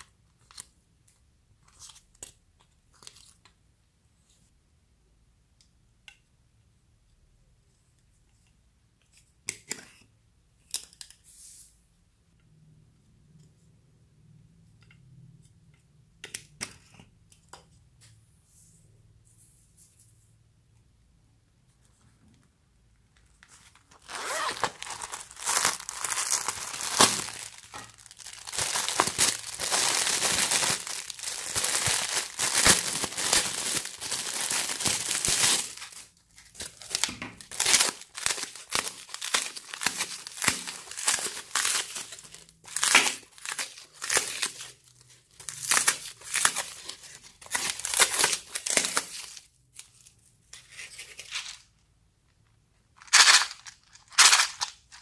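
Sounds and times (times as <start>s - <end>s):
wrapping crinkling and tearing: 23.4s - 51.7s, 53.0s - 55.0s
styrofoam snapping and crumbling: 24.0s - 44.7s, 45.6s - 49.4s.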